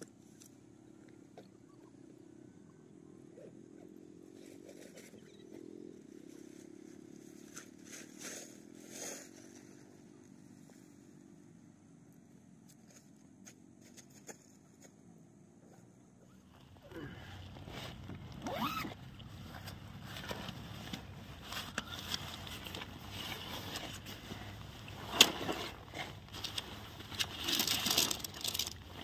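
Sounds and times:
distant engine drone: 0:00.0 - 0:12.5, 0:15.6 - 0:29.0
plastic tarp crackling: 0:25.0 - 0:29.0.

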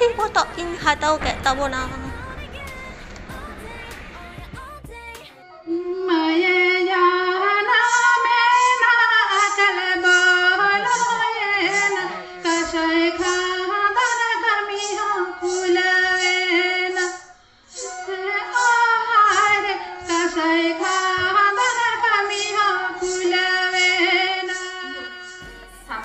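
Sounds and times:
woman singing into microphone: 0:00.0 - 0:26.0.

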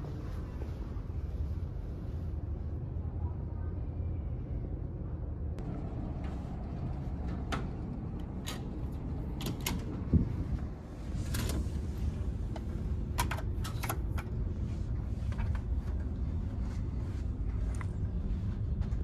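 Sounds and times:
low ship hum: 0:00.0 - 0:19.0.

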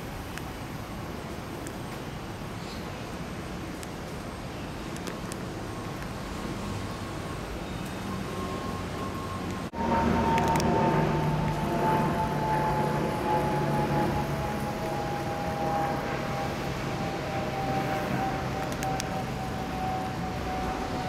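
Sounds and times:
distant whine falling in pitch: 0:05.6 - 0:21.0
low hum: 0:08.3 - 0:21.0.

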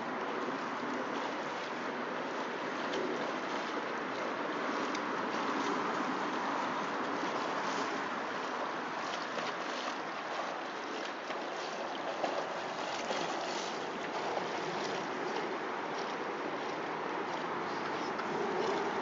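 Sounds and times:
lake water rushing: 0:00.0 - 0:19.0
small water splashes: 0:00.0 - 0:19.0.

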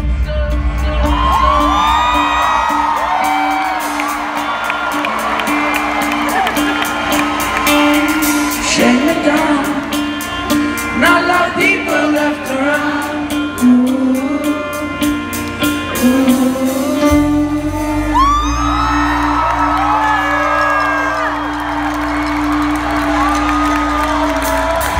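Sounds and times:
held guitar notes: 0:00.1 - 0:24.9
man singing: 0:08.5 - 0:19.3
low bass: 0:13.6 - 0:24.9.

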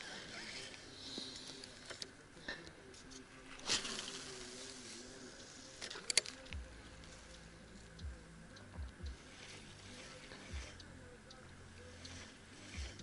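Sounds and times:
faint distant music: 0:00.0 - 0:13.0
soft low thumps: 0:06.5 - 0:09.3, 0:12.8 - 0:13.0.

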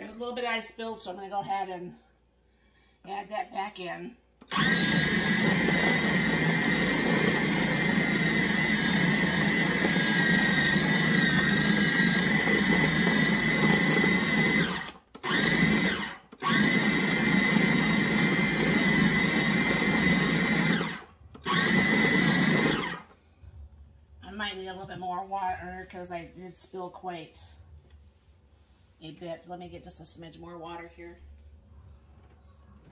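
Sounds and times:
food processor motor whining: 0:04.4 - 0:23.2.

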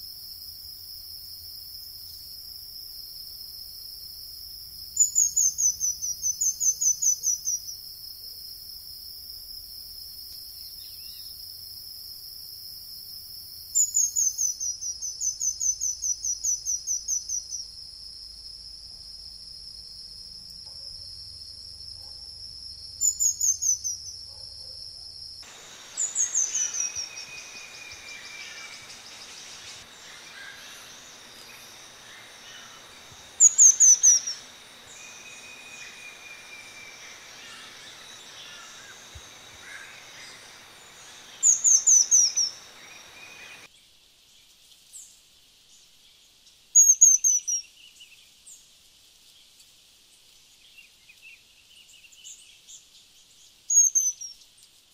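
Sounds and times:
high insect hum: 0:00.0 - 0:43.8, 0:48.8 - 0:54.9
lower whistles: 0:25.4 - 0:43.7.

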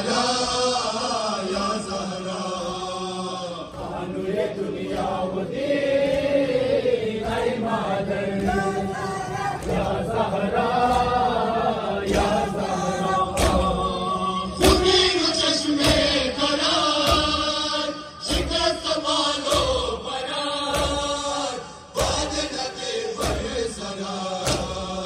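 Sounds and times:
men chanting in chorus: 0:00.0 - 0:25.0
chest-beating slaps: 0:13.3 - 0:14.0, 0:14.6 - 0:17.6, 0:18.2 - 0:25.0.

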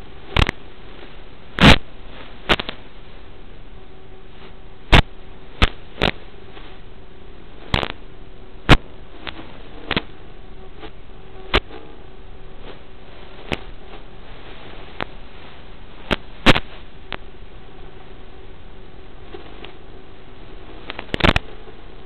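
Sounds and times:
static hiss: 0:00.0 - 0:22.0
sharp pops: 0:00.4 - 0:00.6, 0:01.6 - 0:02.8, 0:04.9 - 0:06.2, 0:07.6 - 0:08.0, 0:08.7 - 0:10.2, 0:10.8 - 0:11.9, 0:16.0 - 0:17.3, 0:20.8 - 0:21.5.

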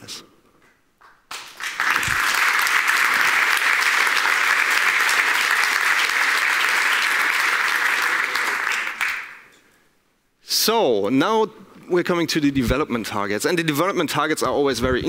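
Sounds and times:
audience applauding: 0:01.0 - 0:09.5.

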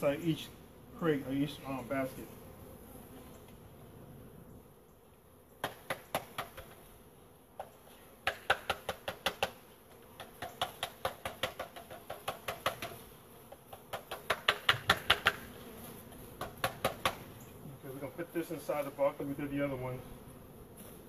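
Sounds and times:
bees buzzing: 0:00.0 - 0:21.0
sharp raps on wooden crate: 0:05.6 - 0:06.8, 0:07.6 - 0:09.6, 0:10.2 - 0:15.5, 0:16.4 - 0:17.3.

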